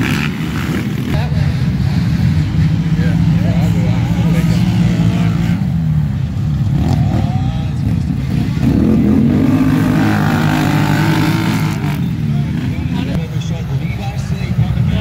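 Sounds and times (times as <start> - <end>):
quad engines running hard: 0.0 - 15.0
engine revving up: 8.2 - 13.2.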